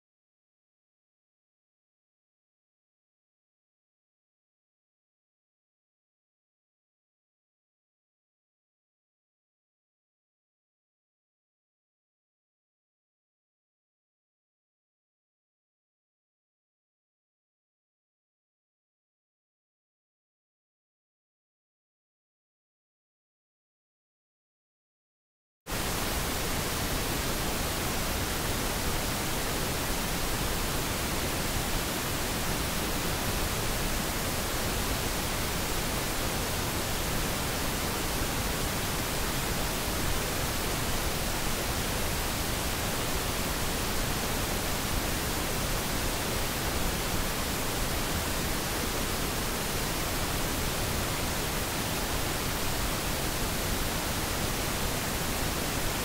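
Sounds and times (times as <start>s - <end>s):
pink noise hiss: 25.7s - 56.0s.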